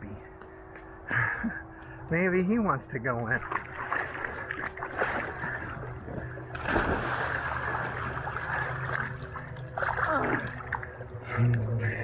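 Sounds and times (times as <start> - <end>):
pool water sloshing and splashing: 3.2 - 11.7.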